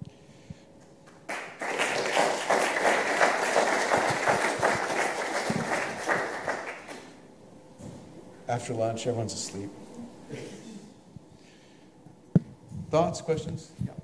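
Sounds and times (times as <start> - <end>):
audience applauding: 1.1 - 7.2.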